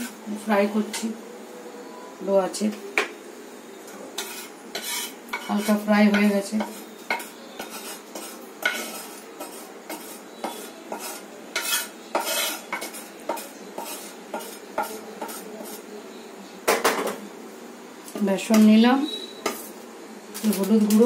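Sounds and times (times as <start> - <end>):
metal spoon scraping steel plate: 3.9 - 15.9, 18.5 - 19.8.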